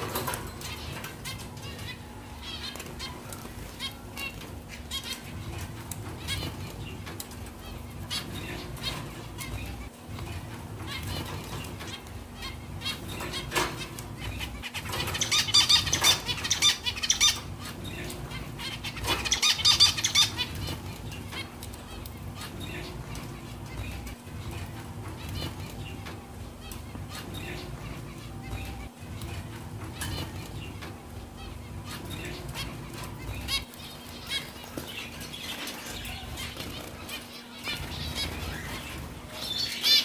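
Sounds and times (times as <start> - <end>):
finches chirping: 0.0 - 40.0.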